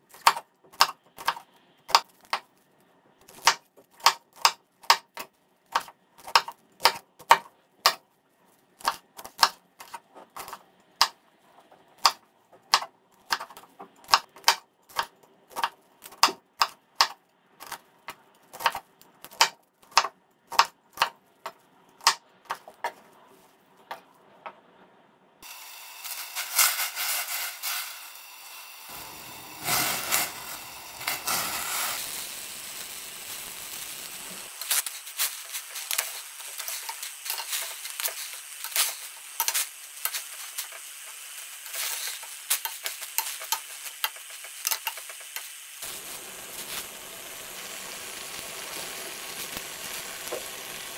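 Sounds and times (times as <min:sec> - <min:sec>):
knife chopping on wooden board: 0:18.6 - 0:21.2
steady hiss: 0:25.4 - 0:50.9.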